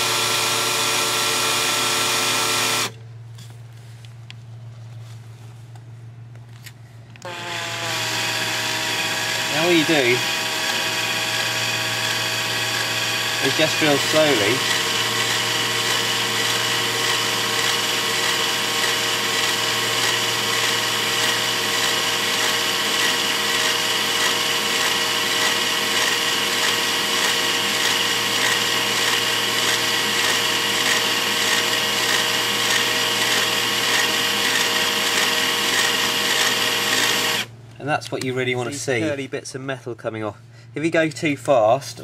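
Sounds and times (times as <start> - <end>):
drill cutting through steel: 0.0 - 3.0, 7.2 - 37.5.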